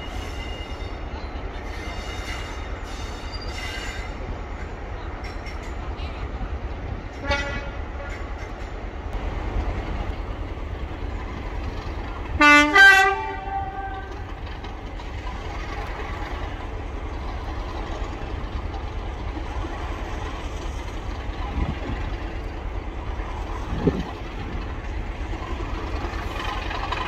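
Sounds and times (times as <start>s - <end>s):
locomotive horn blasts: 7.2s - 8.1s, 12.4s - 14.3s.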